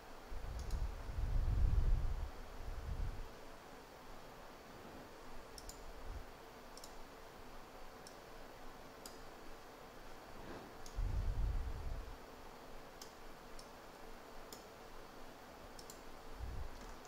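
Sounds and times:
faint steady hum: 0:00.0 - 0:17.0
computer mouse button clicking: 0:15.8 - 0:16.0.

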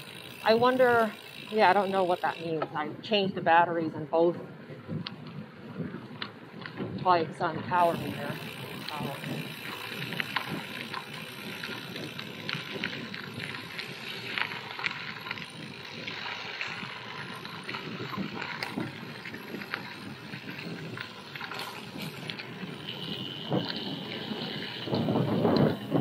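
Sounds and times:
tyres crunching on gravel: 0:07.7 - 0:25.9.

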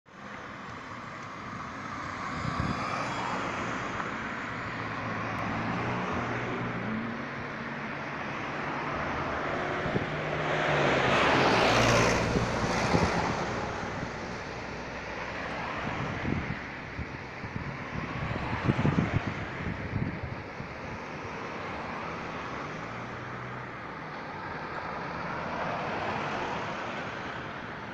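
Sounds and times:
cars driving past: 0:00.1 - 0:27.9.

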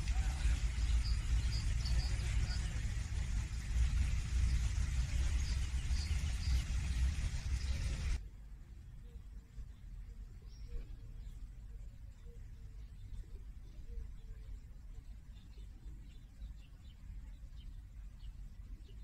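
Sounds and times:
steady low rumble: 0:00.0 - 0:19.0
high bird chirps: 0:00.1 - 0:02.9.

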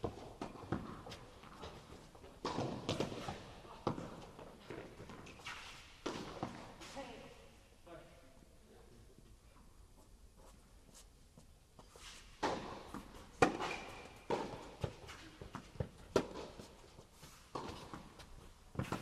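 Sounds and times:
tennis ball bouncing on court: 0:00.0 - 0:01.8, 0:02.4 - 0:05.3, 0:12.4 - 0:16.7, 0:17.5 - 0:19.0.

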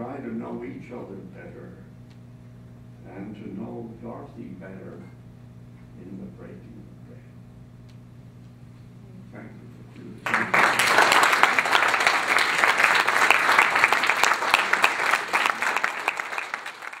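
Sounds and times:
audience applauding: 0:10.2 - 0:17.0.

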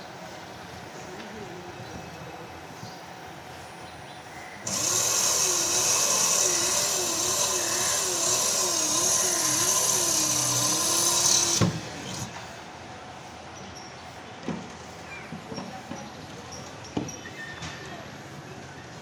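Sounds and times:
electric power tool running: 0:04.6 - 0:12.4.

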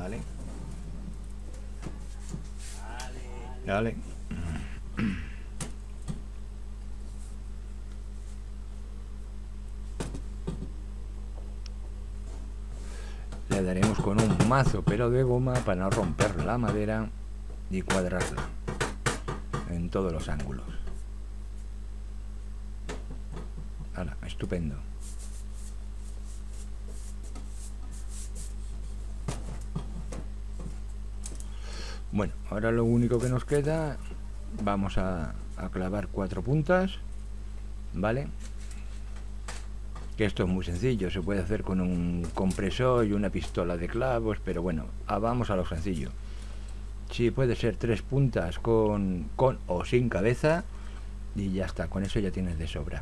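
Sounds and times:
low electrical hum: 0:00.0 - 0:53.0.

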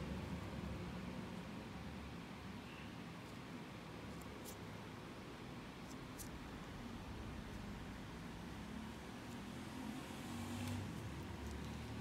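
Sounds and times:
room noise hiss and hum: 0:00.0 - 0:12.0.

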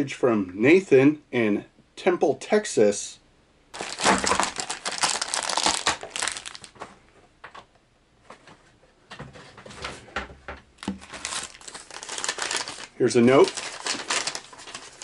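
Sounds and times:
plastic bags crinkling: 0:03.8 - 0:06.8, 0:10.8 - 0:15.0.

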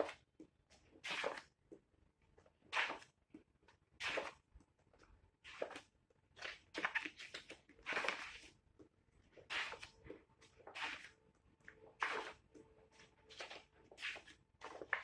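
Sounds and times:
paper pages turning: 0:01.0 - 0:01.5, 0:04.0 - 0:04.4, 0:05.4 - 0:08.6, 0:09.3 - 0:11.2, 0:12.0 - 0:12.5, 0:13.3 - 0:15.0.

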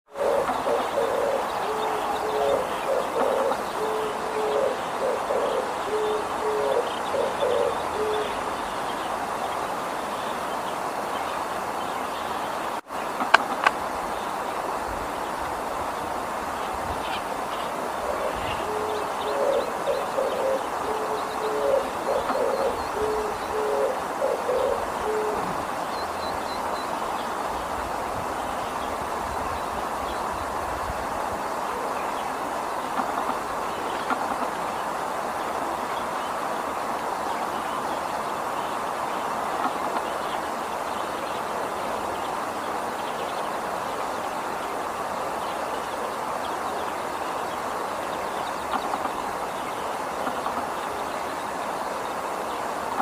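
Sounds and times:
dove cooing: 0:00.1 - 0:08.5, 0:18.0 - 0:25.7
steady background hiss: 0:00.1 - 0:53.0.

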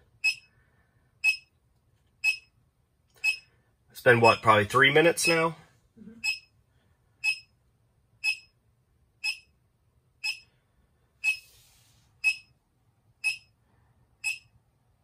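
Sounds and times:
short high electronic beeps: 0:02.2 - 0:02.5, 0:03.2 - 0:03.5, 0:06.2 - 0:06.5, 0:08.2 - 0:08.5, 0:11.2 - 0:11.5, 0:12.2 - 0:12.5, 0:14.2 - 0:14.5.

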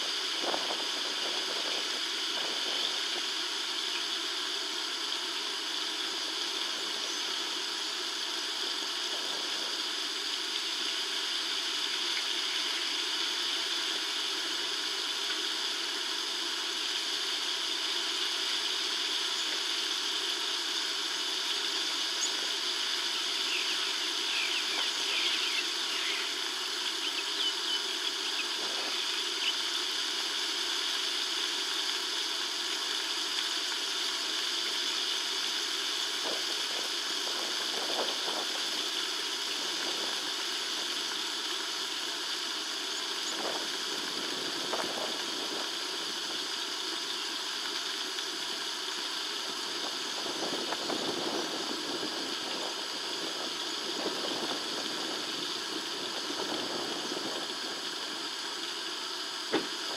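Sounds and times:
outdoor ambient hiss: 0:00.0 - 0:59.9
faint high chirps: 0:23.1 - 0:29.7.

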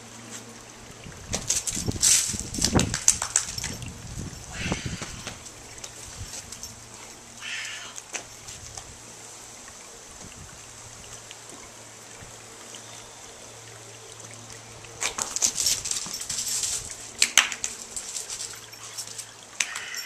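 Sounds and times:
dog paws scrabbling on gravel: 0:01.3 - 0:08.9, 0:15.0 - 0:20.0.

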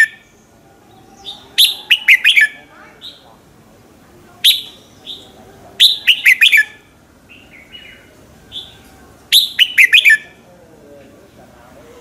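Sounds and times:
bird singing whistled notes: 0:00.0 - 0:03.2, 0:04.4 - 0:10.4.

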